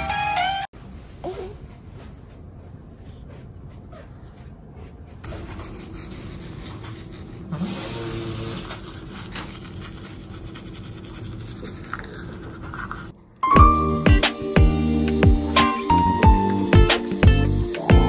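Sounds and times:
toothbrush scrubbing teeth: 5.2s - 13.2s.

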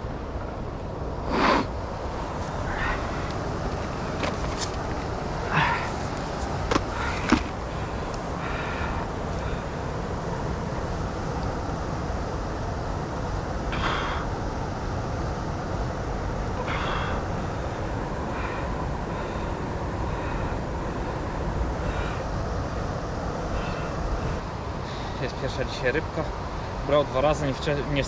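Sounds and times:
steady rushing noise: 0.0s - 28.0s.

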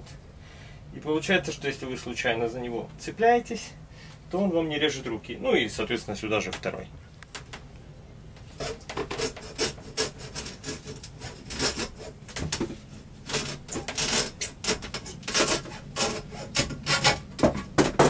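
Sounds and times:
hacksaw cutting hose: 8.6s - 12.6s, 13.2s - 18.0s.

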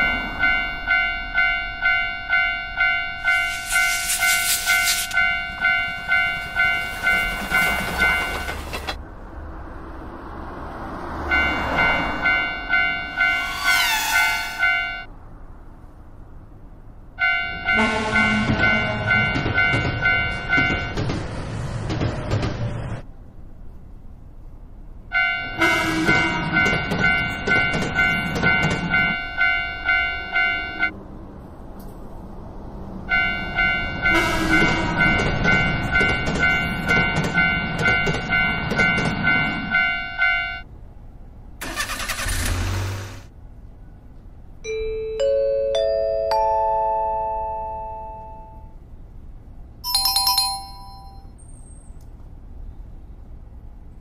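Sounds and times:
railroad crossing bell ringing: 0.0s - 9.0s, 11.3s - 15.1s, 17.2s - 21.0s, 25.1s - 30.9s, 33.1s - 40.7s, 44.7s - 48.8s, 49.8s - 52.0s
passing train rushing: 0.0s - 15.8s, 17.3s - 23.4s, 25.5s - 40.4s.

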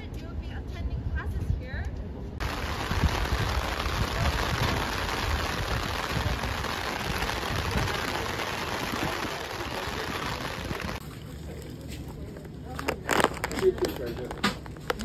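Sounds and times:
rain on an umbrella: 2.4s - 11.0s, 12.8s - 15.0s.

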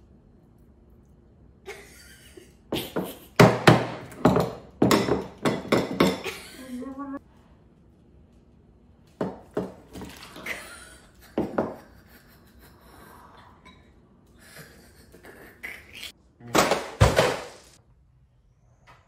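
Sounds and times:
bowls and spoons clattering on table: 3.0s - 6.4s.

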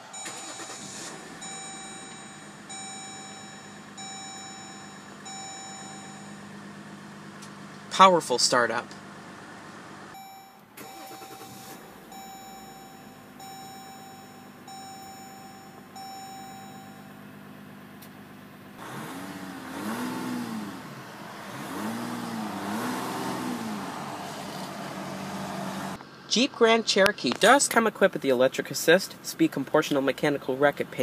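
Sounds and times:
dashboard warning chime: 0.0s - 6.7s, 10.1s - 17.8s
diesel engine idling and revving: 0.0s - 31.0s.

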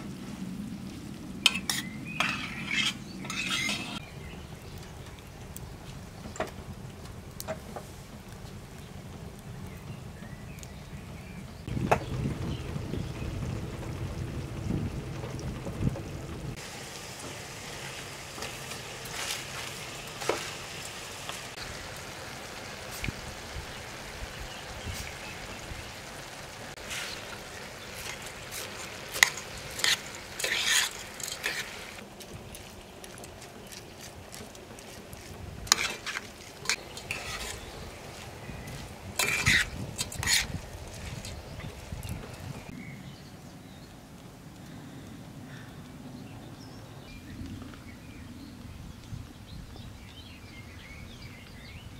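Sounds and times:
metal spoon scraping a pan: 1.5s - 4.0s, 28.0s - 32.0s, 35.7s - 37.8s, 39.2s - 41.4s
food sizzling in a pan: 16.6s - 32.0s, 35.7s - 42.8s.

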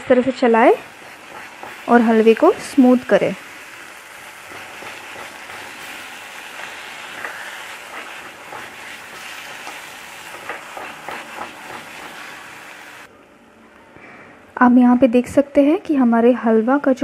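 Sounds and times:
soft frying sizzle: 0.0s - 13.1s
wooden spatula scraping a pan: 0.8s - 3.1s, 4.3s - 13.1s.

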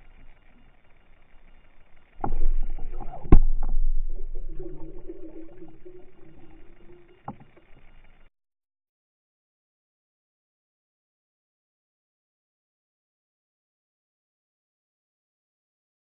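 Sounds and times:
churning water: 2.1s - 8.2s
sharp underwater knock: 2.2s - 6.5s
muffled underwater splash: 2.2s - 8.2s.

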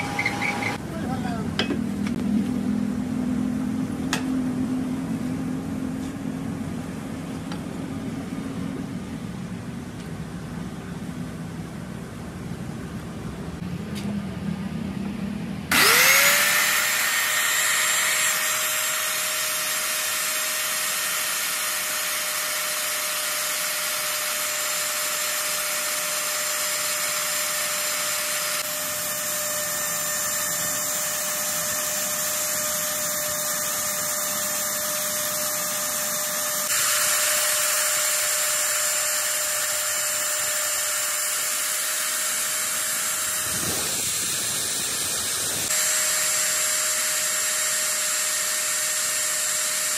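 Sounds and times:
drill press motor running: 15.7s - 49.9s.

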